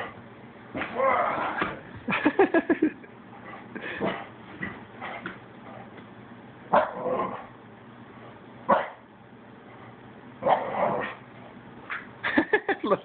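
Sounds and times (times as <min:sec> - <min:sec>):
dog barking: 0:06.7 - 0:07.1, 0:08.7 - 0:09.0, 0:10.4 - 0:11.1.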